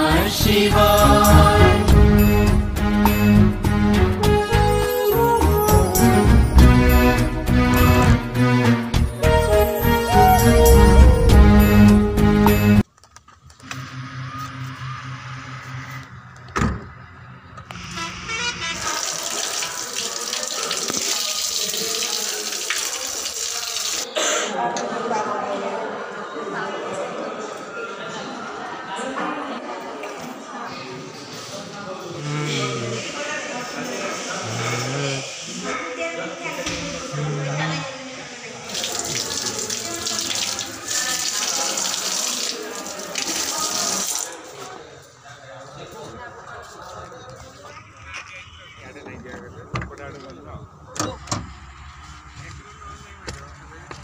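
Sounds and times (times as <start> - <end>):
background music: 0.0 - 12.8
tap water splashing: 19.3 - 23.7.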